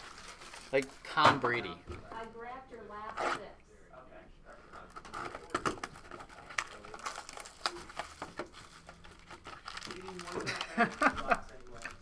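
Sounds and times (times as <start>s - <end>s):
plastic wrap crinkling: 0.0s - 2.3s, 4.8s - 12.0s.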